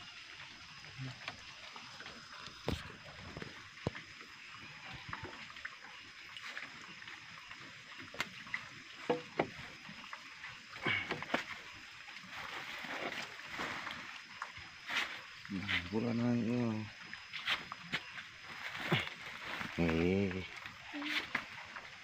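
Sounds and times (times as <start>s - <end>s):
steady hiss: 8.9s - 21.9s
scuffs and rustles: 17.4s - 20.0s.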